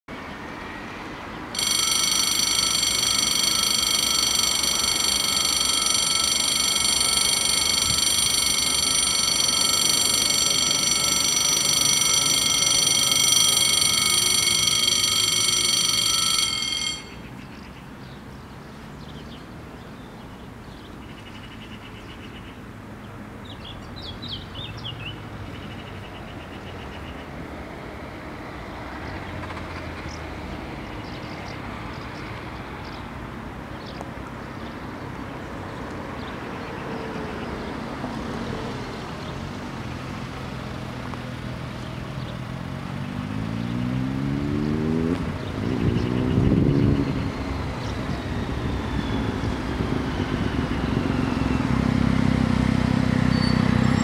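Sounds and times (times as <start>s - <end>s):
level crossing warning bells: 1.5s - 17.5s, 39.2s - 52.3s.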